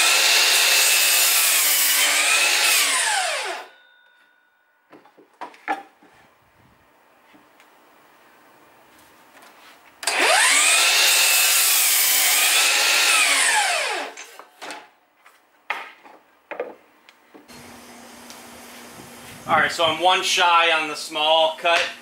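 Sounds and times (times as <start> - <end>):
miter saw motor whine: 10.1 - 14.1.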